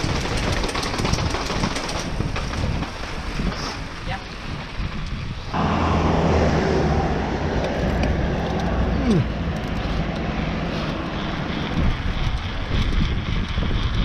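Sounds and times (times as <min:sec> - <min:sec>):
bike tyres rumbling on paving: 0:00.0 - 0:14.0
wind on microphone: 0:00.0 - 0:14.0
road traffic passing: 0:05.3 - 0:14.0
vehicle engine hum: 0:05.4 - 0:14.0.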